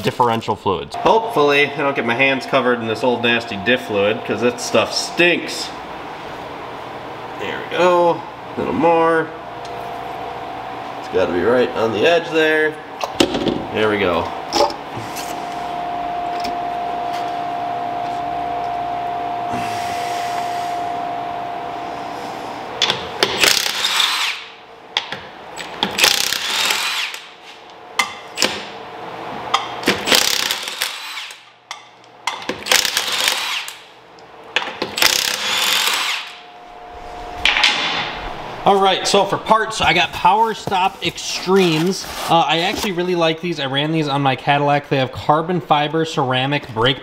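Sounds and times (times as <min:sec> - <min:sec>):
power tool whining: 0:25.6 - 0:27.3, 0:34.9 - 0:37.6.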